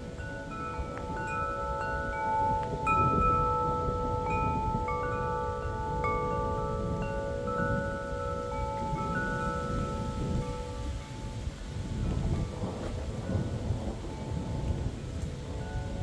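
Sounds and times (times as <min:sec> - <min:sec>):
wind chimes ringing: 0:00.0 - 0:16.0
storm noise: 0:08.7 - 0:16.0.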